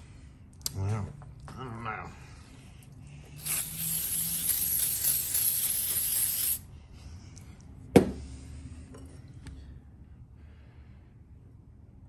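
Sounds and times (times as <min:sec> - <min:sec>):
aerosol spray hissing: 0:03.4 - 0:06.6.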